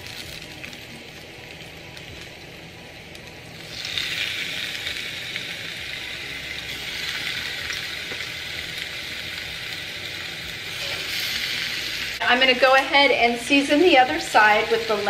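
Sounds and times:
chicken sizzling on grill pan: 3.2 - 15.0.

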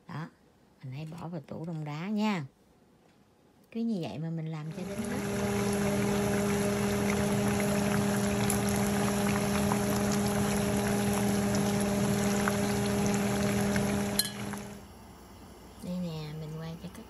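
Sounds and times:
food deep-frying in oil: 4.7 - 14.8.

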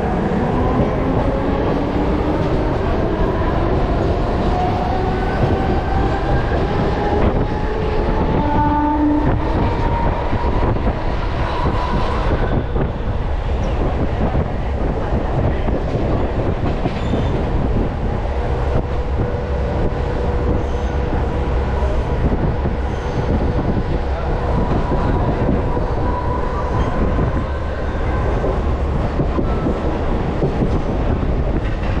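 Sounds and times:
train wheels rumbling on rails: 0.0 - 32.0
train clicks: 9.3 - 17.9, 28.3 - 32.0.

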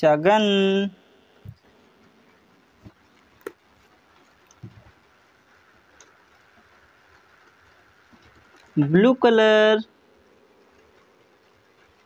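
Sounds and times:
faint knocks and clicks: 4.2 - 5.0.

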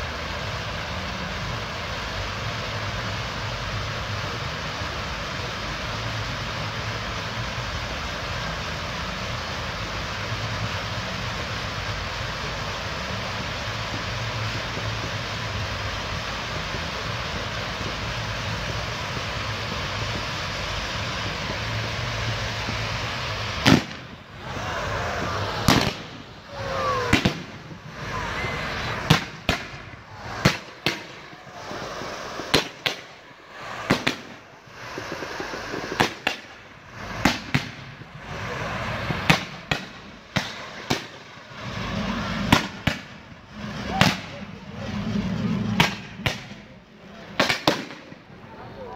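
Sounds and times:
firework fountain hissing: 0.0 - 48.9
firework whistles: 11.7 - 48.6
sharp firework bangs: 21.2 - 48.3.

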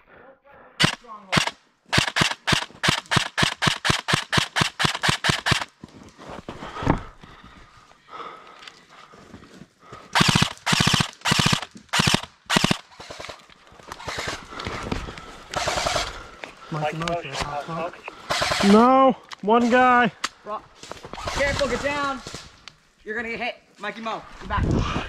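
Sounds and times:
airsoft rifle shots: 0.8 - 5.7, 10.2 - 13.4, 14.0 - 14.4, 15.6 - 16.2, 18.2 - 18.9, 21.2 - 22.5.

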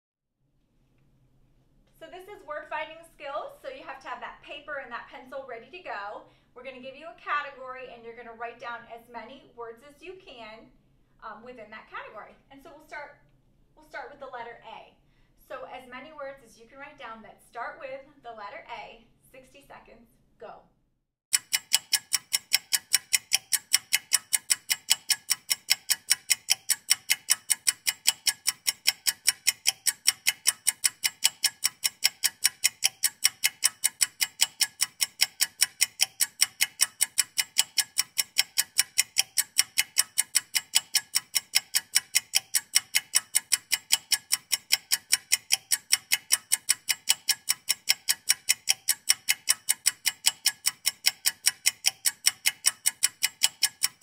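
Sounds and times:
clock ticking: 21.3 - 54.0.

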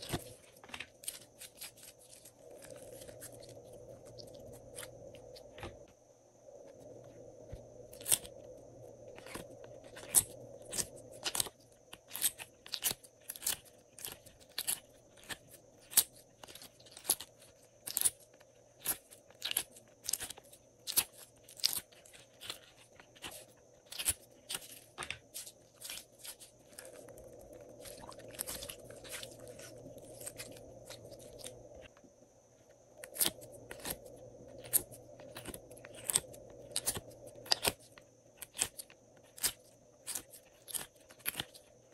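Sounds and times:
sticky slime clicks and crackles: 34.6 - 41.6.

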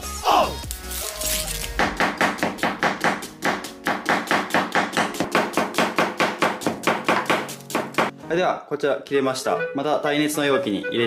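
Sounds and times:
knife slicing onion on plastic board: 1.7 - 8.1.

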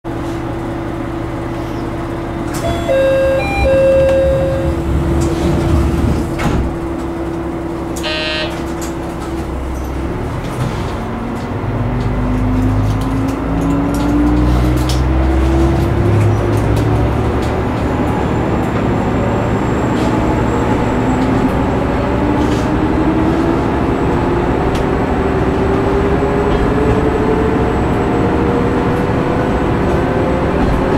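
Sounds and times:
short chime-like tones: 2.6 - 4.8
train horn toot: 8.0 - 8.6
diesel engine idling and revving: 8.6 - 30.9.

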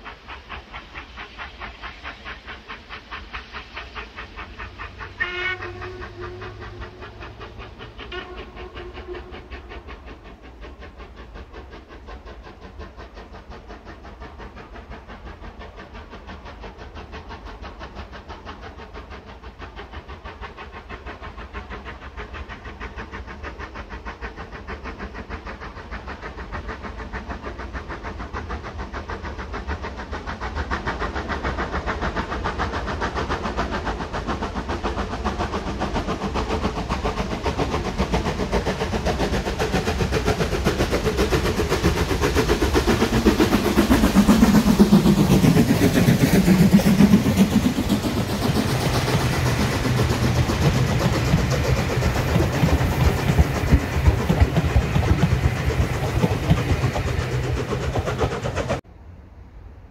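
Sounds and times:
steam locomotive exhaust beats: 0.0 - 59.1
steam whistle blasts: 5.1 - 7.1, 8.0 - 9.7.

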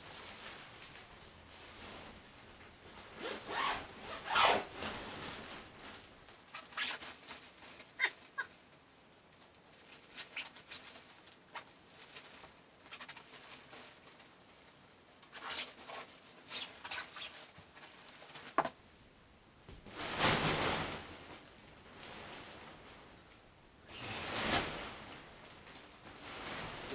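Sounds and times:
tent fabric rustling: 0.0 - 18.6, 23.9 - 26.9.

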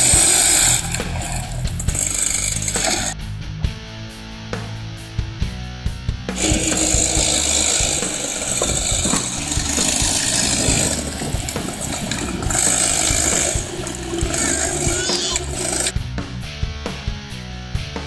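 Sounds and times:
go-kart engine rattling: 0.0 - 3.2, 6.4 - 15.9
toy ride-on car whine and clatter: 0.0 - 3.2, 6.4 - 15.9.

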